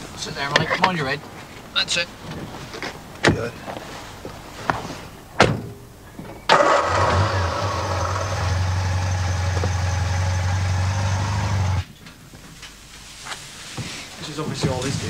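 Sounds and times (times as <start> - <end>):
car door shutting: 5.4 - 5.8
car engine idling: 6.5 - 11.9.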